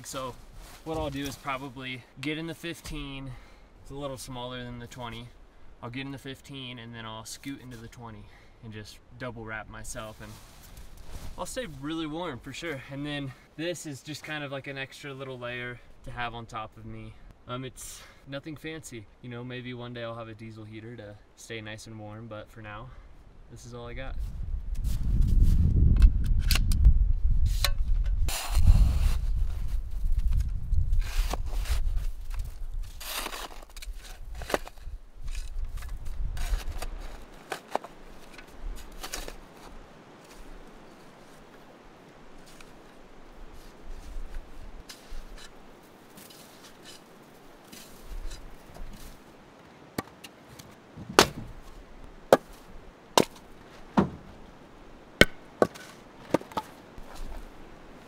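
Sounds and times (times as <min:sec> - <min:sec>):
snow shovel scraping: 0:28.3 - 0:29.3, 0:32.8 - 0:35.5
firewood being chopped: 0:51.0 - 0:51.7, 0:52.3 - 0:54.4, 0:55.2 - 0:57.2.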